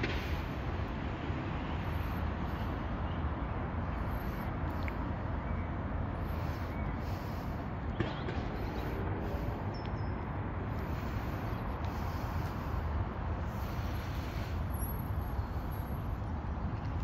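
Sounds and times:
distant city traffic rumble: 0.0 - 17.0.

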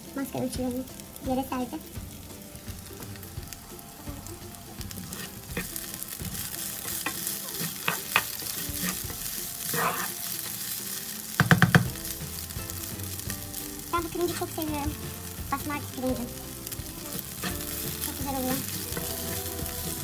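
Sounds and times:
rice sizzling in a frying pan: 0.0 - 20.0
spoon knocking on a pan: 0.9 - 10.6, 11.4 - 20.0
plastic spoon scraping a pan: 3.0 - 10.6.

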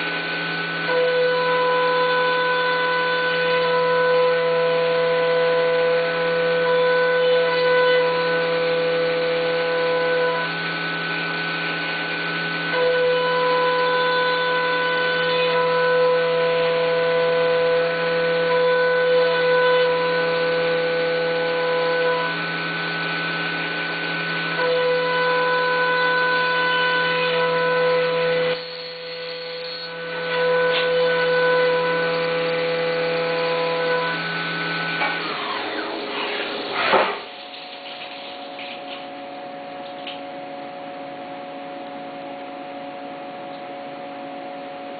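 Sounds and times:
milling machine cutting metal: 0.0 - 40.3
spindle spinning down: 34.9 - 38.9.

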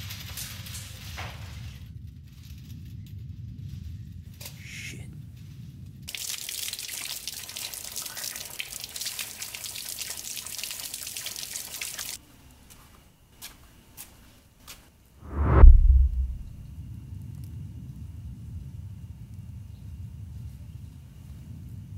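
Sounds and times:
faucet water over hands: 6.1 - 12.2
loud deep rumble: 15.2 - 16.6.

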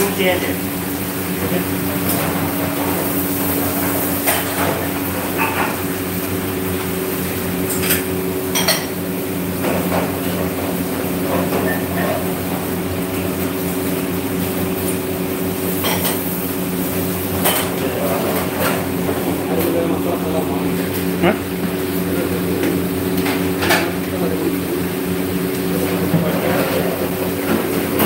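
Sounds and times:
low mechanical hum: 0.0 - 28.0.

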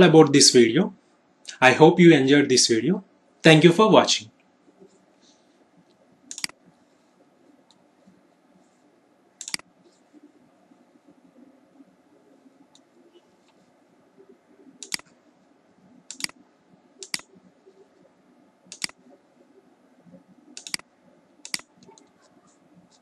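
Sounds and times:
faint room noise: 0.0 - 23.0
computer mouse clicking: 5.9 - 6.7, 9.4 - 10.0, 14.8 - 15.2, 16.0 - 16.4, 17.0 - 17.4, 18.7 - 19.2, 20.5 - 22.3.

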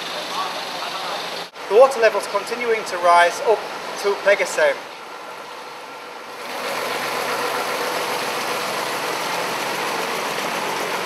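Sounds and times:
truck engine running: 0.0 - 1.5, 6.2 - 11.0
truck driving through water: 6.3 - 11.0.

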